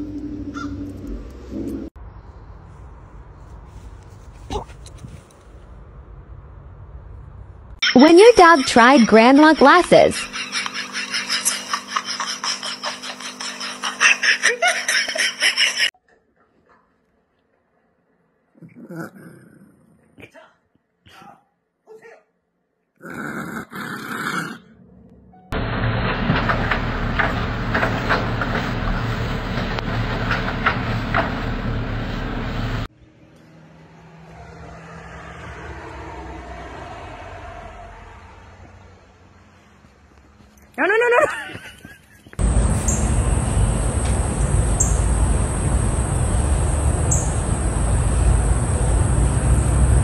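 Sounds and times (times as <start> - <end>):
faint outdoor rumble: 0.0 - 10.6, 24.6 - 50.0
person laughing hard: 7.8 - 15.9.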